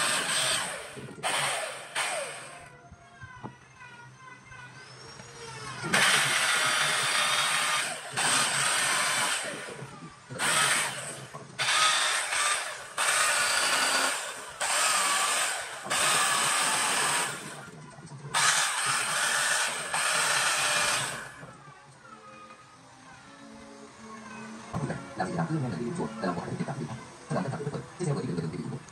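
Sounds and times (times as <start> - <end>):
electric carving tool grinding wood: 0.0 - 2.8, 4.8 - 17.8, 18.4 - 21.5.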